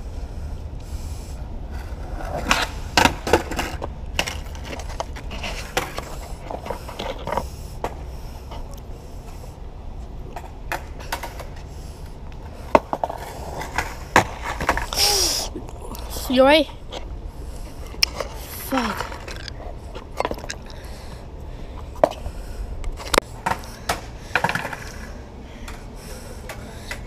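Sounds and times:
skateboard clattering on asphalt: 1.7 - 9.4, 10.3 - 11.8, 12.4 - 15.1, 17.7 - 20.9, 23.2 - 25.8.

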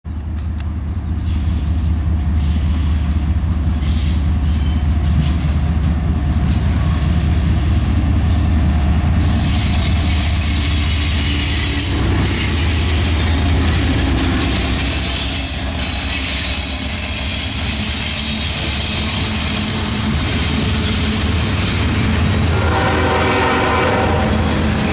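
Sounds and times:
diesel locomotive drone: 0.1 - 24.9
rail noise: 0.1 - 24.9
train wheel squeal: 0.9 - 5.6, 9.1 - 22.8.

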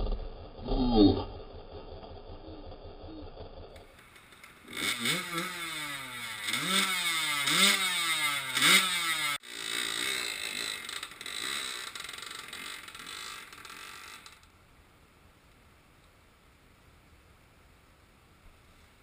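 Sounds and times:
dirt bike engine revving: 0.0 - 14.4.

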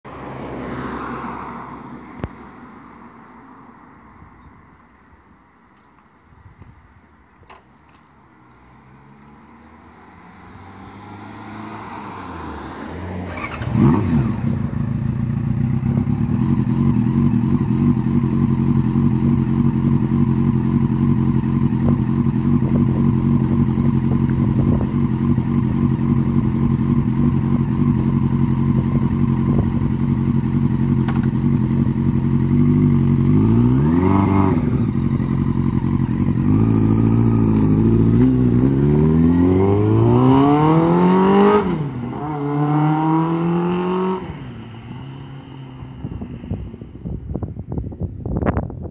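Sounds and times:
motorcycle engine revving: 10.1 - 47.8
motorcycle engine starting and idling: 13.2 - 42.7.

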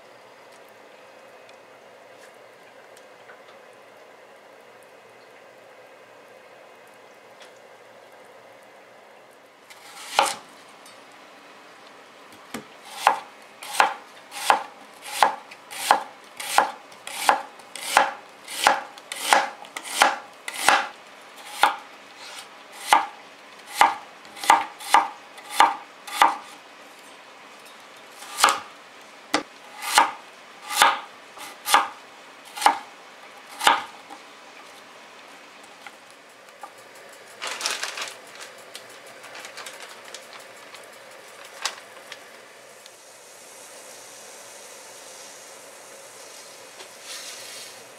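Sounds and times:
knife chopping on cutting board: 9.8 - 10.4, 12.5 - 23.1, 23.7 - 26.5, 28.2 - 28.6, 29.4 - 32.0, 32.6 - 32.9, 33.5 - 34.0.

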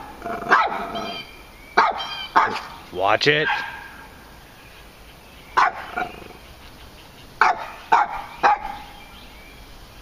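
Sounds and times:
dog barking: 0.4 - 1.2, 1.8 - 2.8, 3.4 - 4.0, 5.6 - 6.1, 7.4 - 8.9.

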